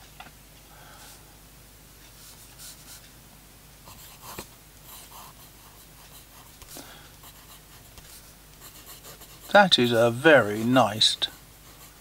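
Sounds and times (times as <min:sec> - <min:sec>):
pen nib scratching on paper: 0:03.9 - 0:12.0.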